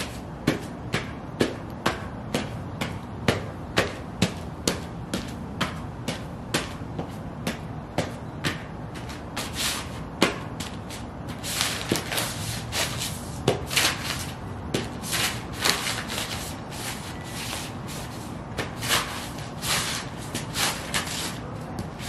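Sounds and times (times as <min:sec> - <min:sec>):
boots stomping on paper: 0:10.2 - 0:17.0.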